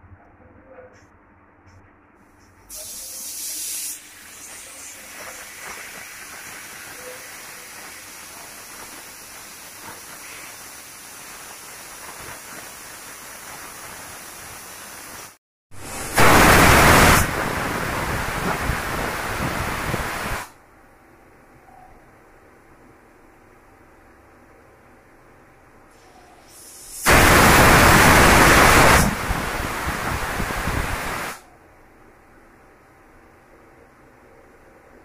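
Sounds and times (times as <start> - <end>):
pressure cooker steam hissing: 2.7 - 15.3
loud burst of hissing steam: 2.7 - 20.5, 26.5 - 31.4.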